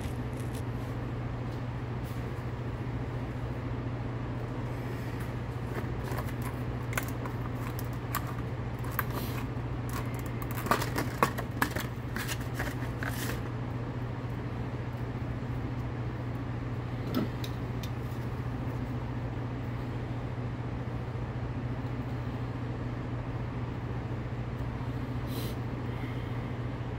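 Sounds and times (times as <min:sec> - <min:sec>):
plastic packaging crinkling: 0:00.0 - 0:00.7, 0:05.6 - 0:13.5
steady low hum: 0:00.0 - 0:26.9
fuse handling clicks and rustles: 0:05.7 - 0:13.5.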